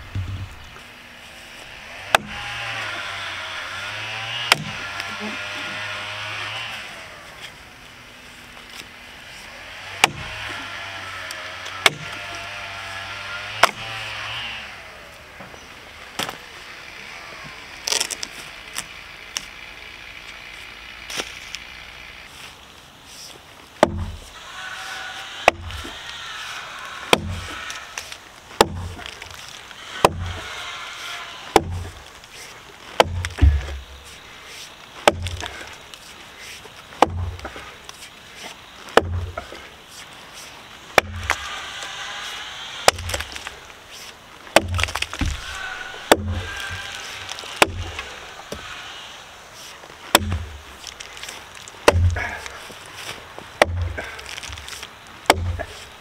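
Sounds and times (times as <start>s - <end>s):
axe chopping wood: 1.8s - 3.0s, 3.6s - 6.8s, 9.8s - 14.9s, 23.8s - 34.2s, 35.0s - 39.6s, 40.9s - 49.0s, 49.6s - 56.0s.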